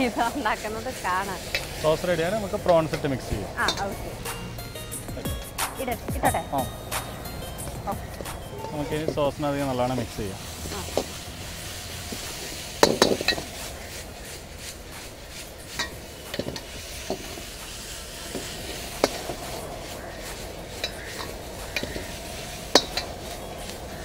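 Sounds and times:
food sizzling: 0:00.0 - 0:24.0
metal ladle clanking on wok: 0:03.6 - 0:04.0, 0:20.8 - 0:23.4.

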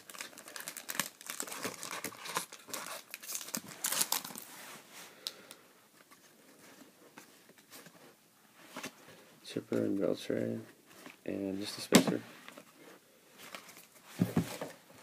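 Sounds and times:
foil wrapper crinkling and tearing: 0:00.0 - 0:04.4.

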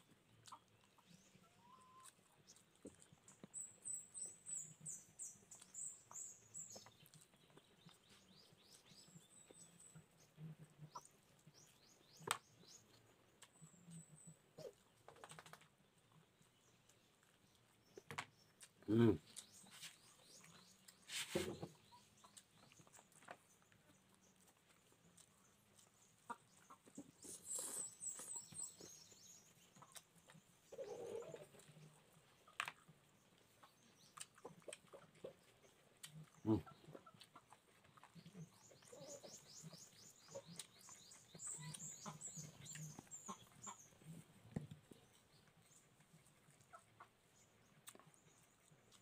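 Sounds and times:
chewing and mouth clicks: 0:00.0 - 0:21.1, 0:21.9 - 0:49.0
small birds chirping: 0:00.0 - 0:49.0
chickens clucking: 0:18.9 - 0:23.4, 0:24.4 - 0:49.0.

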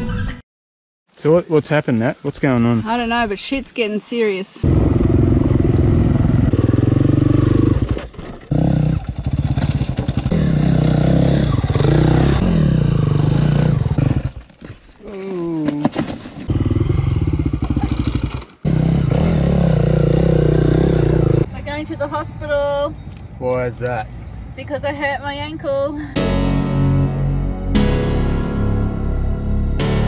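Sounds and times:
dirt bike engine revving: 0:04.6 - 0:14.4, 0:16.5 - 0:21.5.

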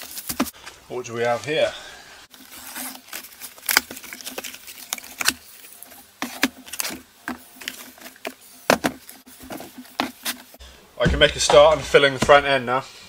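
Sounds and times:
cardboard rustling and scraping: 0:00.0 - 0:01.7, 0:02.3 - 0:12.6.

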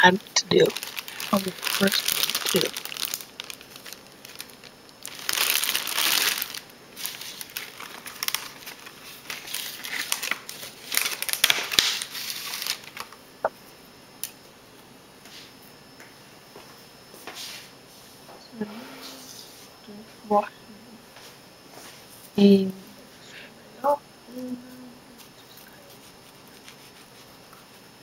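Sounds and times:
plastic packaging crinkling: 0:00.5 - 0:13.2.

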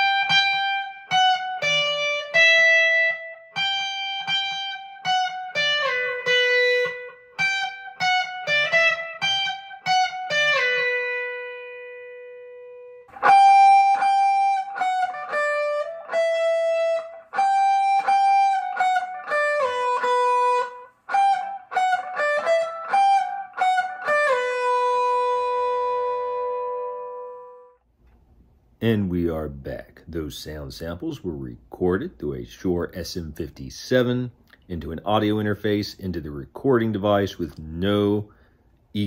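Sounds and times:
electric guitar melody through amplifier: 0:00.0 - 0:27.8.

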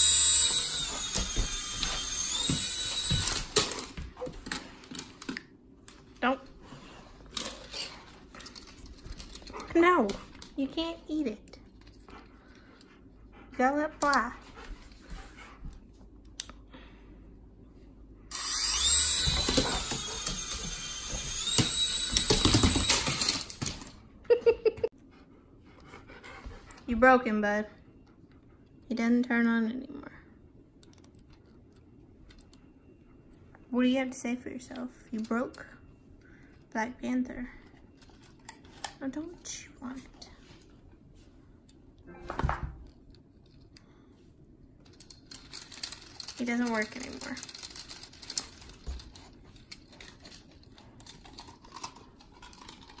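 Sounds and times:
small propeller motor whining: 0:00.0 - 0:03.9, 0:18.3 - 0:23.4.

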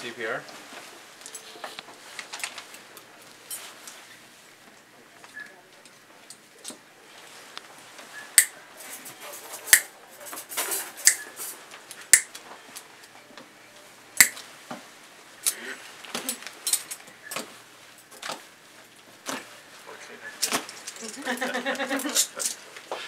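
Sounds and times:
surgical instruments snipping and clicking: 0:12.1 - 0:12.4, 0:14.2 - 0:14.4.

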